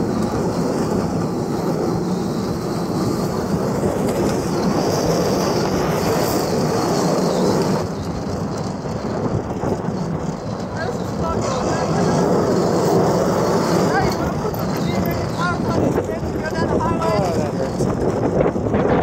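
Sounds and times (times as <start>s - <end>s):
truck rumbling on asphalt: 0.0s - 19.0s.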